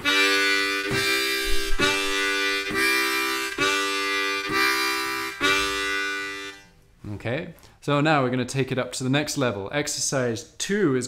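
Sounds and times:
harmonica playing chords: 0.0s - 6.8s.

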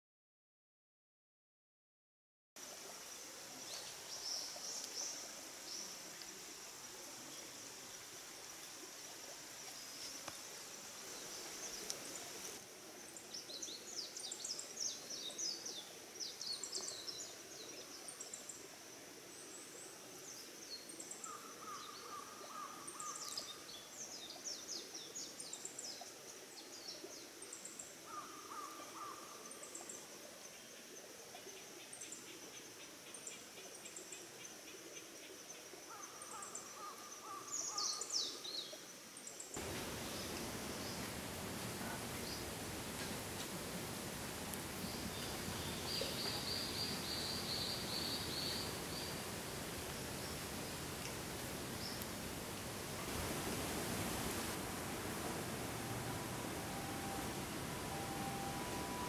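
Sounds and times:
birds chirping: 39.6s - 59.0s
lower bird call: 52.9s - 59.0s
high-pitched insect drone: 54.4s - 59.0s.

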